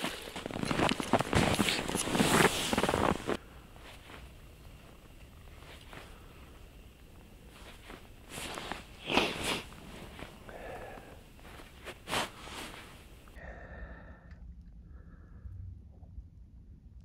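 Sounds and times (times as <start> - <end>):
person sniffing through the nose: 8.3 - 13.0.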